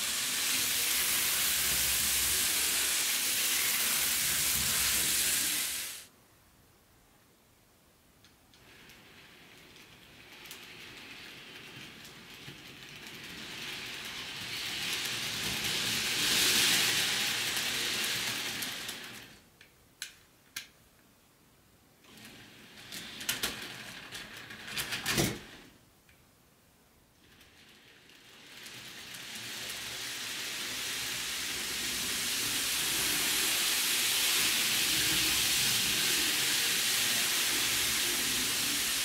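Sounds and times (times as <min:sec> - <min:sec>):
model train running on track: 0:00.0 - 0:06.0, 0:10.4 - 0:19.2, 0:28.0 - 0:39.0.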